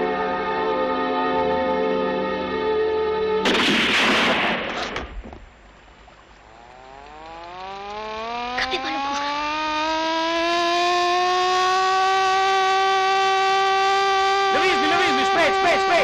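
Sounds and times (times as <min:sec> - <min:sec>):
loud burst of noise: 0:03.4 - 0:05.2
sharp cracks: 0:03.4 - 0:10.0
motor-driven alarm siren wailing: 0:06.4 - 0:16.0.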